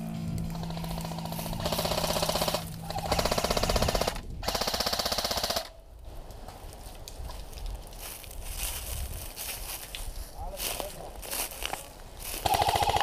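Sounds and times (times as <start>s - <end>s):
airsoft rifle firing bursts: 0.5s - 5.8s, 12.4s - 13.0s.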